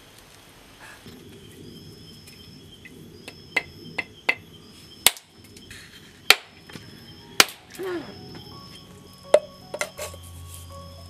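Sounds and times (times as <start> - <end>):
insects trilling: 0.0 - 11.0
machete knocking on coconut: 7.4 - 7.6.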